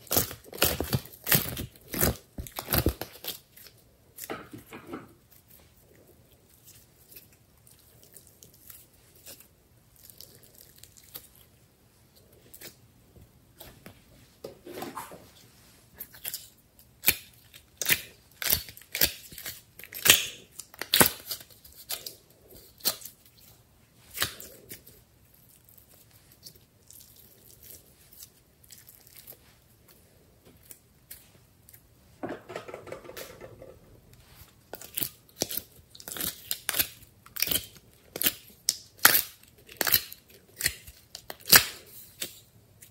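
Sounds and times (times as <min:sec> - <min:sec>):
plastic containers handled: 0:32.2 - 0:34.2.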